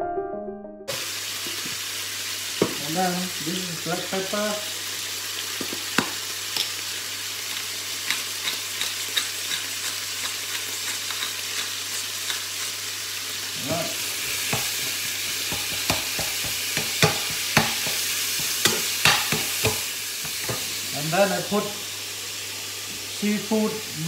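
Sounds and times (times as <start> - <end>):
meat sizzling in a frying pan: 0.9 - 24.0
metal spoon scraping a pan: 8.1 - 12.8, 14.2 - 20.7.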